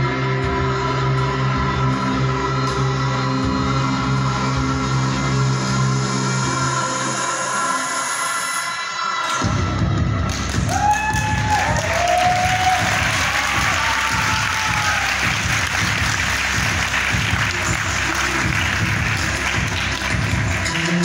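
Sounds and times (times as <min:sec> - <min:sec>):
show music: 0:00.0 - 0:21.0
audience applauding: 0:10.3 - 0:21.0.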